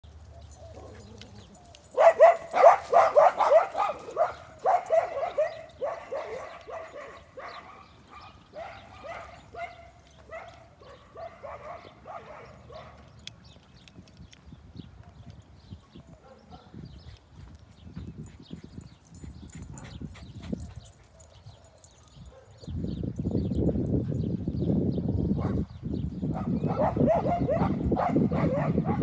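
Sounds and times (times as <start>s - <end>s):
dogs barking: 0.5s - 13.2s, 16.2s - 16.8s, 25.4s - 25.7s, 26.3s - 29.0s.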